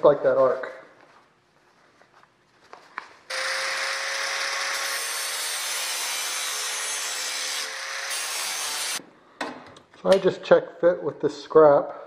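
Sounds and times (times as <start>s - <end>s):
angle grinder grinding metal: 3.3s - 9.0s.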